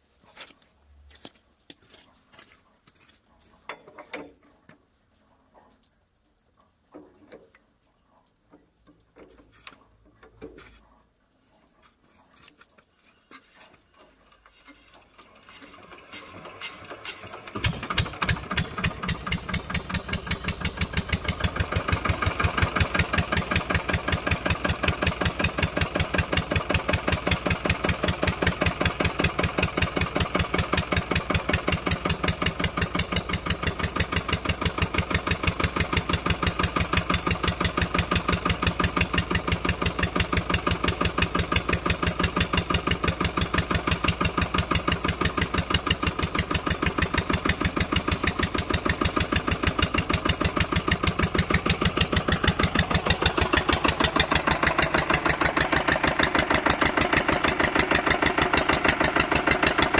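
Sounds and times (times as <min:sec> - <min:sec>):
diesel engine hand-cranked: 0:12.4 - 0:59.9
diesel engine running steadily: 0:14.9 - 0:59.9.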